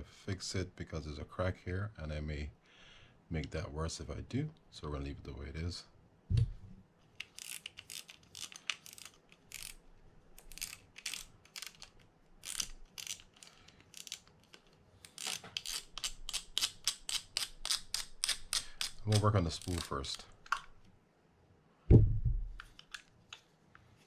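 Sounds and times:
single knock: 21.9 - 22.5.

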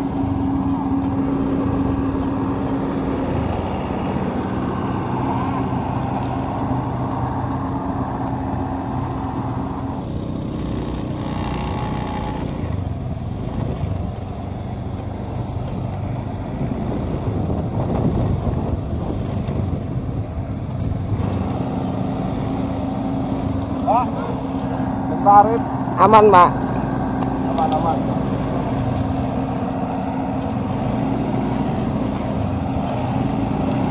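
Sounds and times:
diesel engine running: 0.0 - 33.9
rough noisy vehicle sound: 0.0 - 33.9.

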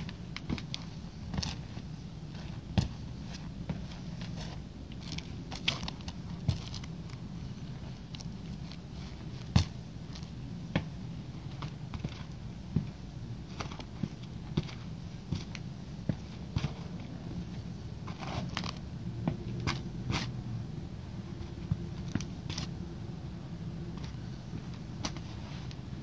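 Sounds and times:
steady low hum: 0.0 - 26.0
sneakers scuffing on brick pavement: 11.6 - 17.0.

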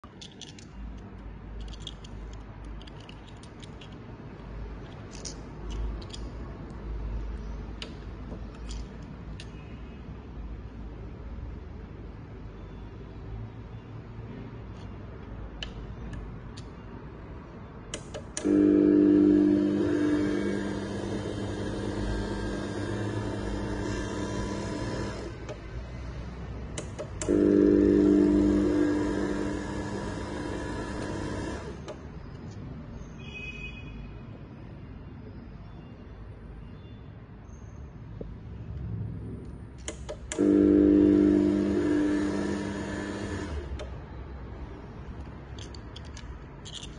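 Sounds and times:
garage door opener motor humming: 18.0 - 32.1, 39.8 - 44.1.

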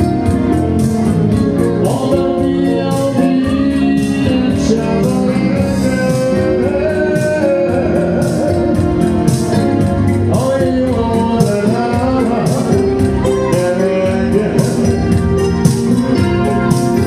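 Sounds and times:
keyboard accompaniment: 0.0 - 17.0
person singing: 0.0 - 17.0
steady beat: 0.0 - 17.0.

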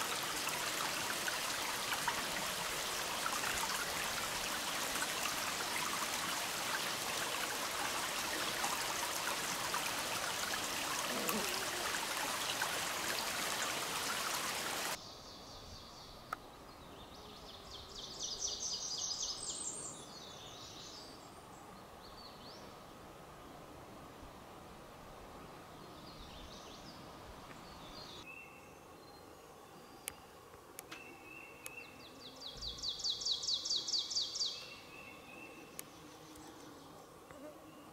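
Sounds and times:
stream splashing over rocks: 0.0 - 15.0
open-air ambience: 0.0 - 37.9
songbird chirping: 25.6 - 37.9.

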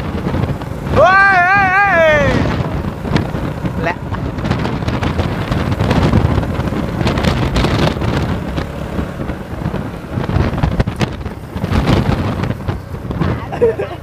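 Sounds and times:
motorcycle engine: 0.0 - 14.0
road noise: 0.0 - 14.0
wind buffeting microphone: 0.0 - 14.0.

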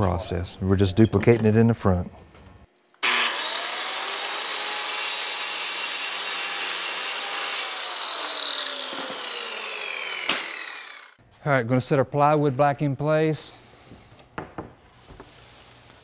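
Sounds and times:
circular saw cutting wood: 3.0 - 11.2.

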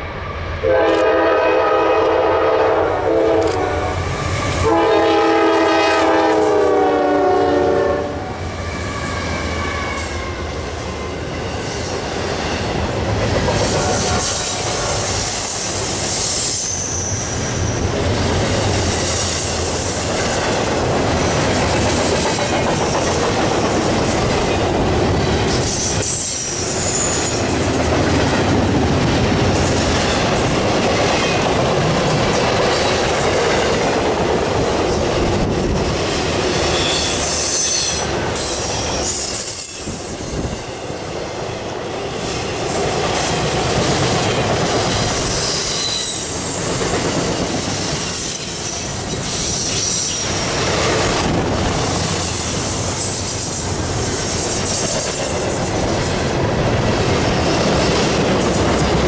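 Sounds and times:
freight train wheels rumbling: 0.0 - 59.0
high-pitched wheel squeals: 13.8 - 17.8, 36.7 - 40.5.

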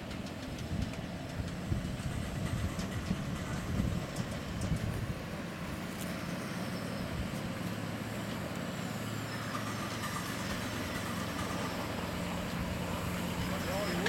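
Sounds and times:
miniature locomotive humming: 0.0 - 14.0
wheels rumbling on rails: 0.0 - 14.0.

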